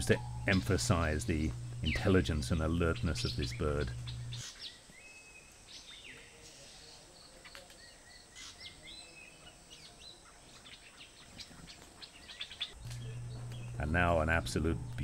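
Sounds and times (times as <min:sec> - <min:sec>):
high-pitched whine: 0:00.0 - 0:04.4.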